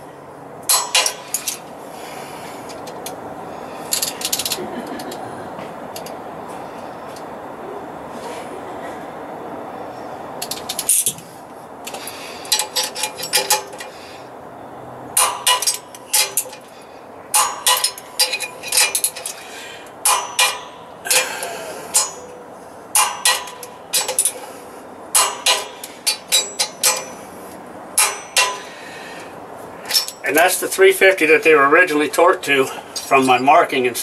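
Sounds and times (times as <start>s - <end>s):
steady background noise: 0.0s - 34.0s
ratchet wrench clicking: 3.9s - 4.6s.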